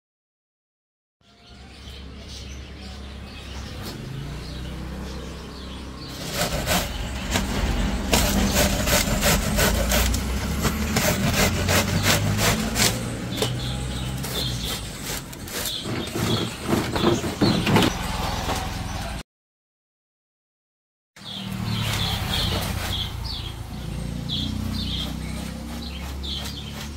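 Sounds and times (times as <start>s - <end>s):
vegetables grated on metal grater: 6.1s - 13.2s, 14.0s - 17.5s, 25.2s - 26.9s.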